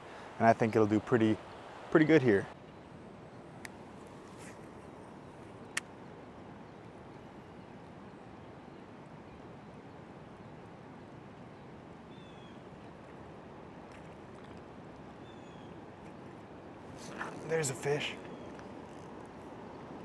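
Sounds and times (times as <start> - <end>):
water rushing: 0.0 - 2.6, 16.9 - 18.3
faint bird chirp: 11.5 - 12.6, 15.2 - 15.8, 17.0 - 19.1.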